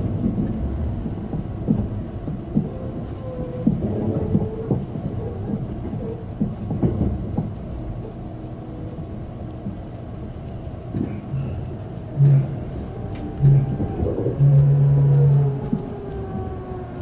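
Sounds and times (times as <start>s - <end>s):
clacks over rail joints: 0.0s - 17.0s
train wheels rumbling on rails: 0.0s - 17.0s
short low hums: 11.0s - 16.9s.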